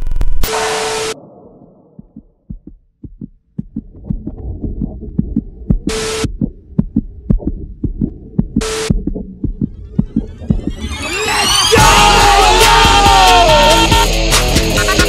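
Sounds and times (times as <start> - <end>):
static glitch noise bursts: 0.0 - 1.2, 9.8 - 11.8
heartbeat-like thumps: 1.2 - 12.1.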